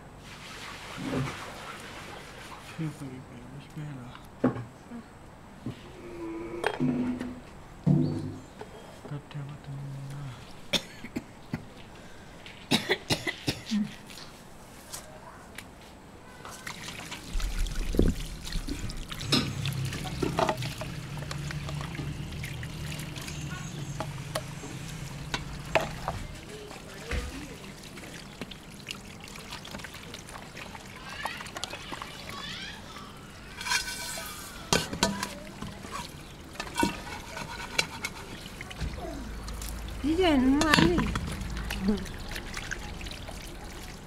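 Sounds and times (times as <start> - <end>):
water pouring from hose: 0.2 - 2.8, 16.6 - 44.0
knocks and clinks on metal bowl: 40.6 - 41.4.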